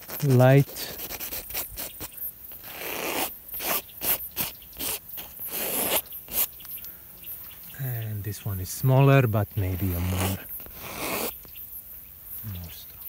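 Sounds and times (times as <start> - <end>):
palette knife scraping canvas: 0.0 - 6.5, 9.7 - 11.4.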